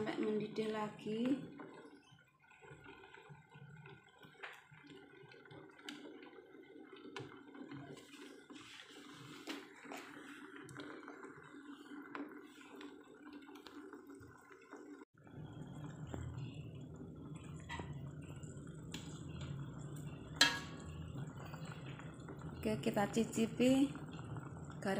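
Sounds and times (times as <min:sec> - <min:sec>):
stew bubbling in a pot: 0:00.0 - 0:24.9
metal ladle stirring: 0:20.4 - 0:21.0.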